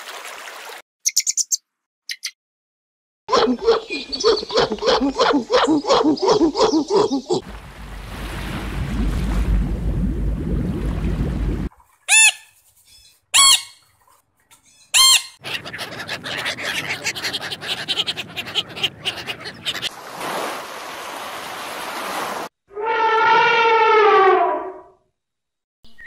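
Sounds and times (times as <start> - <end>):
ducks quacking: 15.0 - 19.9.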